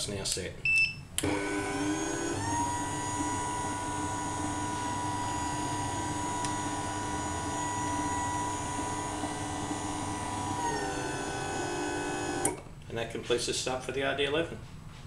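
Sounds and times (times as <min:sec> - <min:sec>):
electric motor whining: 0:01.2 - 0:12.6.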